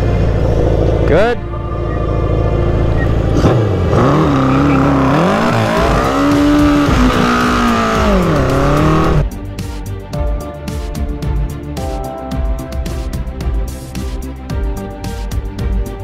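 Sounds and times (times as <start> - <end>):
background music: 0.0 - 16.0
motorcycle engine revving hard: 3.2 - 9.3.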